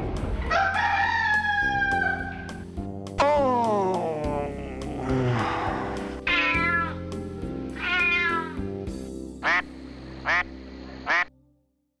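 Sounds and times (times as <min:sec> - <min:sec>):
background music: 0:00.0 - 0:11.9
cat meowing: 0:05.4 - 0:07.0, 0:07.7 - 0:08.6.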